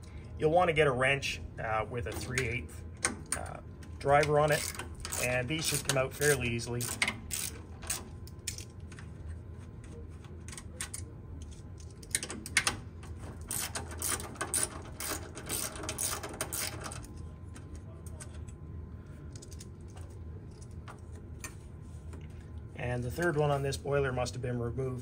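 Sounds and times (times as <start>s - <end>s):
ratchet wrench clicking: 4.5s - 8.7s, 13.5s - 17.1s.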